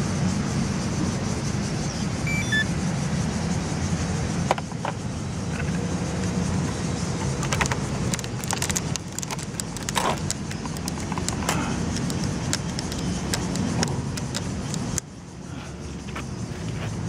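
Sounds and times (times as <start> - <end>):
steady low rumble: 0.0 - 16.6
plastic clicks and rattles: 7.2 - 15.1.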